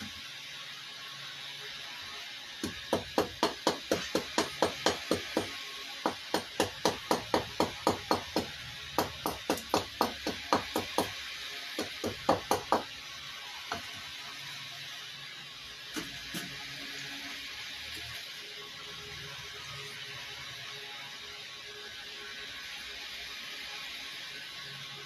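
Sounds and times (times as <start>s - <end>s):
hatchet chopping wood: 2.6s - 11.2s, 11.8s - 12.9s.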